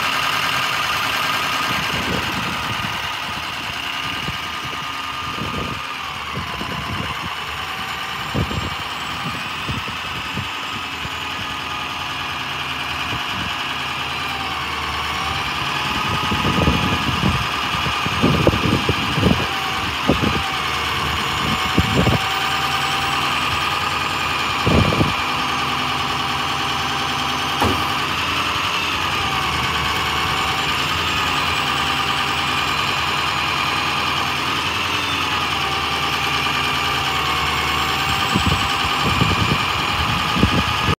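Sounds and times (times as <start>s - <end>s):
diesel truck engine idling: 0.0s - 41.0s
hydraulic whine: 0.0s - 41.0s
short thumps: 27.6s - 28.0s.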